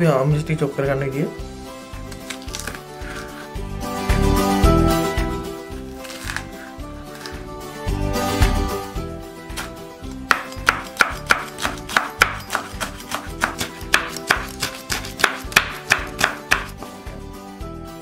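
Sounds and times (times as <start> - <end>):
background music: 0.0 - 18.0
knife chopping on wooden board: 6.0 - 7.4, 9.5 - 16.9.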